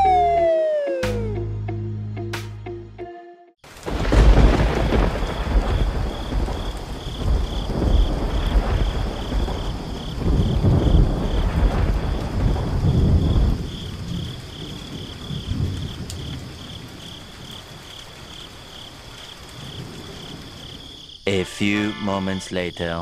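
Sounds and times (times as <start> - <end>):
steady rain: 3.6 - 21.2
thunder rumbling: 3.7 - 18.3.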